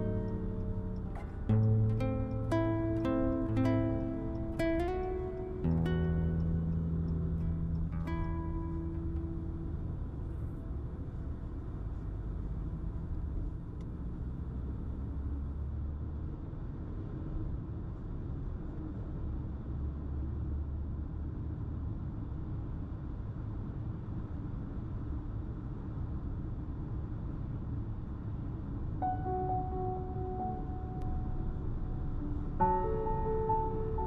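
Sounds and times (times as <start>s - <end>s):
car interior rumble: 0.0s - 22.9s.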